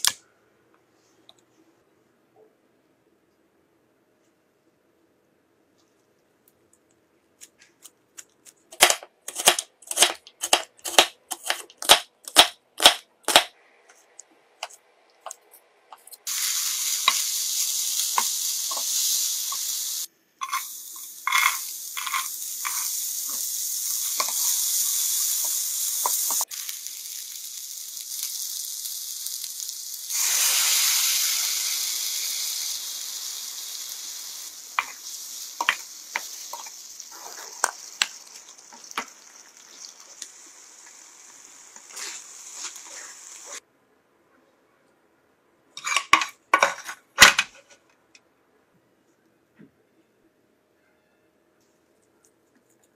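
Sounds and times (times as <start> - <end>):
vegetables sizzling in hot oil: 16.2 - 43.6.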